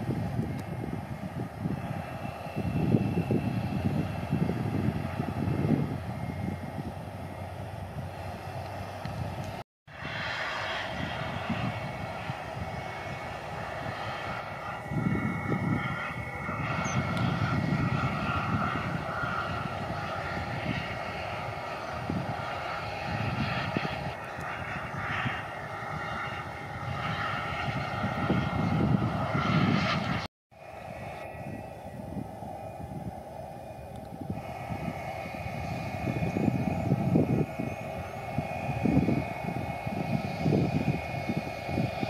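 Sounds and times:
jet engines whining and rumbling: 0.0s - 42.0s.

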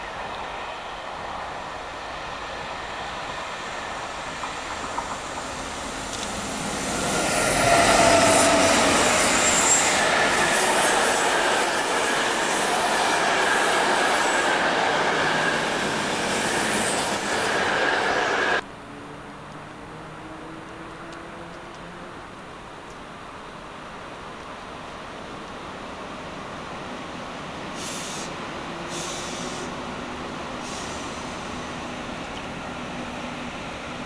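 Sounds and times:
train coaches rolling on rails: 0.0s - 18.6s.

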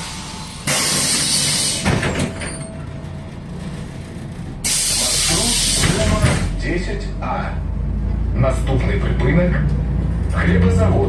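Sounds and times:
bus doors knocking: 0.6s - 6.6s.

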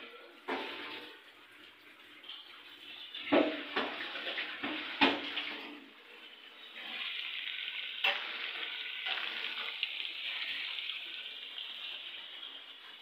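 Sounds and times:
chicken sizzling in hot oil: 6.5s - 13.0s.

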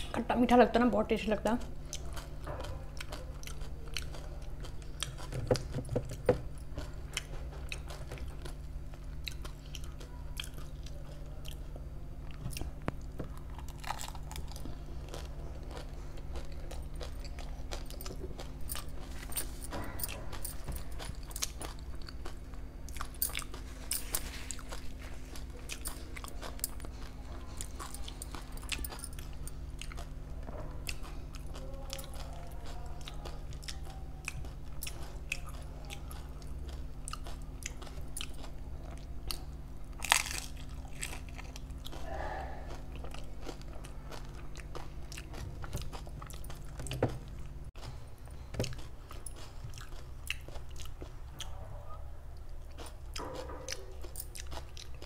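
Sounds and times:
chewing: 1.4s - 55.0s
crisp shells crunching: 39.9s - 41.9s.

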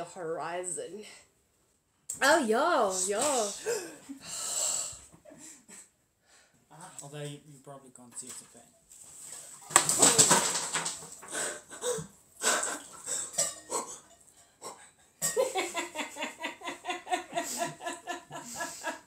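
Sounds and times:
ice clattering in tumbler: 9.7s - 11.3s
person laughing: 15.6s - 19.0s.

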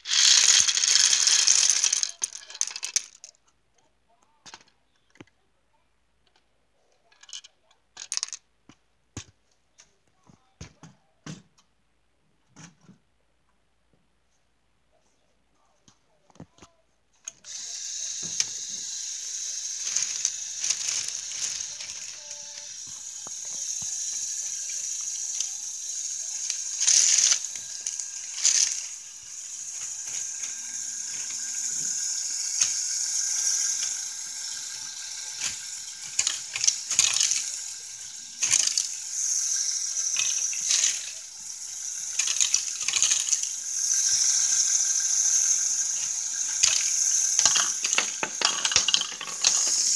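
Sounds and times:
plastic gears clicking and rattling: 0.0s - 5.3s, 7.1s - 8.4s, 17.2s - 49.9s
electric motors whirring: 17.5s - 49.9s.

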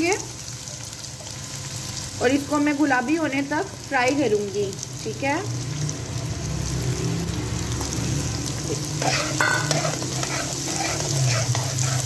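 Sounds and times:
onions sizzling in oil: 0.0s - 12.0s
metal spoon scraping pan: 8.7s - 12.0s
spoon squeal: 9.0s - 12.0s.

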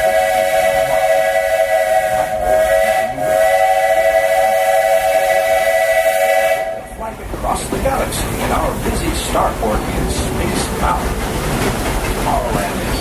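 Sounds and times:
steam locomotive whistle: 0.0s - 7.0s.

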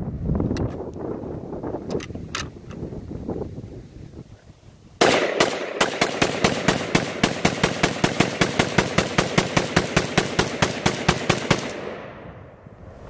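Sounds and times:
rapid rifle shots: 5.0s - 12.2s.

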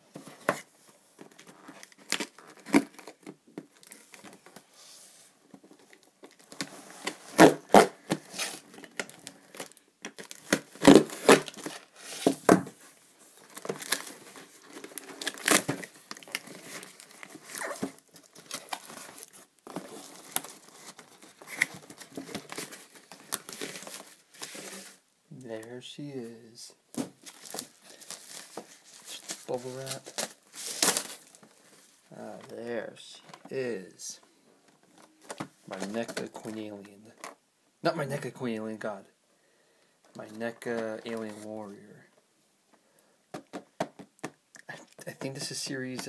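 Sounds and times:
cardboard crinkling: 5.5s - 25.0s, 26.9s - 33.6s
packing tape ripping: 6.6s - 12.3s, 14.7s - 24.6s.

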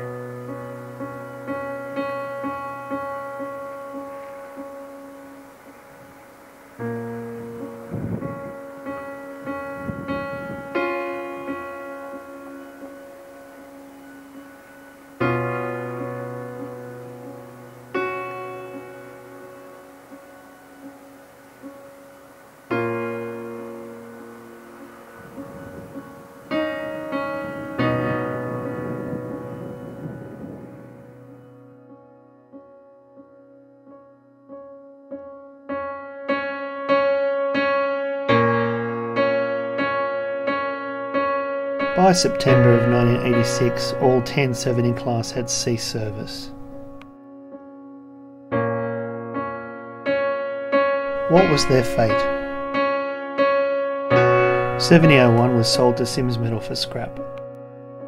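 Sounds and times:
slow piano chords: 0.0s - 58.0s
keyboard repeated notes: 51.1s - 53.0s, 54.2s - 57.5s.

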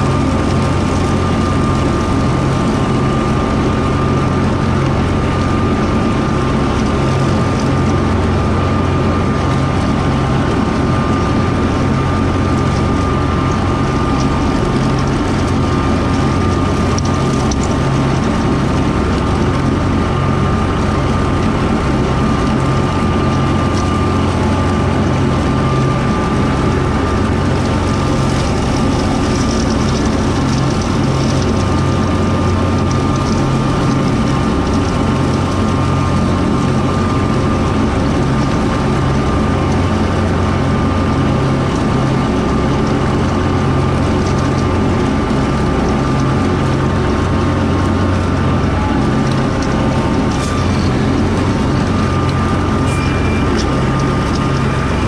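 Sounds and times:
steady high whine: 0.0s - 55.0s
tractor diesel engine running: 0.0s - 55.0s.

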